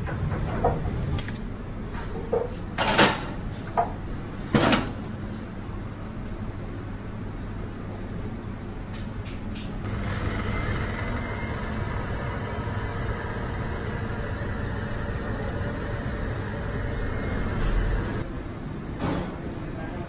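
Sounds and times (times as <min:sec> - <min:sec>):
kitchen broiler hum and rushing: 0:09.8 - 0:18.3.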